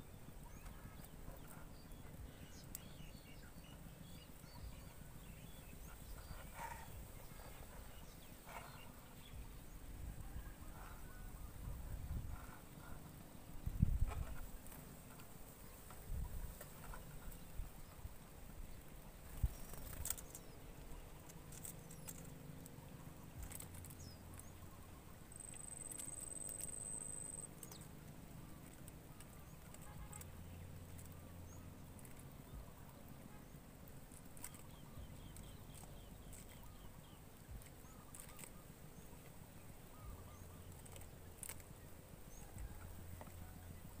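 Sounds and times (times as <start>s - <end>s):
low steady hum: 0.0s - 44.0s
faint chirps: 19.3s - 41.7s.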